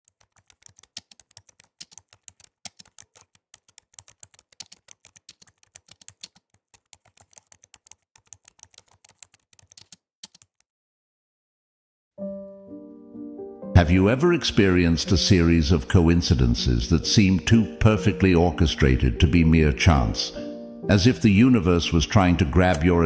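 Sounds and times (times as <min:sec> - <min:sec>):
keyboard key clicks: 0:07.0 - 0:10.6.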